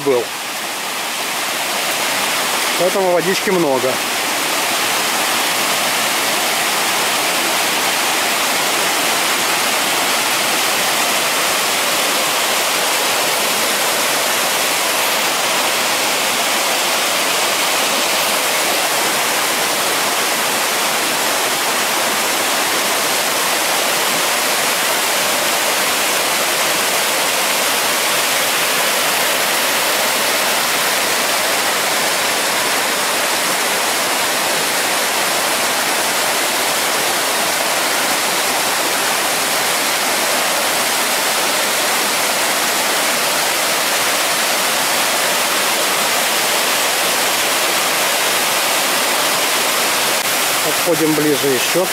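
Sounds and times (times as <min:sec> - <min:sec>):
river rushing over rocks: 0:00.0 - 0:51.9.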